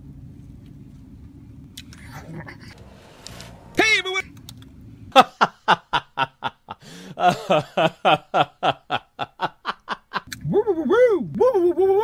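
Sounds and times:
person laughing: 2.1 - 2.8, 5.1 - 12.0.

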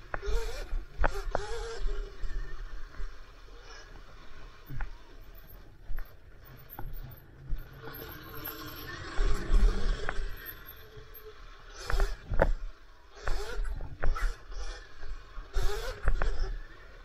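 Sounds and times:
electric motor whine: 0.0 - 5.1, 7.6 - 17.0
chain and frame rattle: 5.4 - 11.2.

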